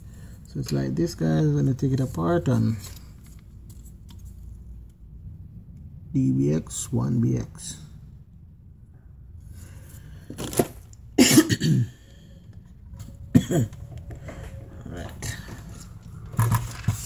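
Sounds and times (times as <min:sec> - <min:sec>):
person coughing or grunting: 0:11.2 - 0:12.1, 0:13.3 - 0:13.9.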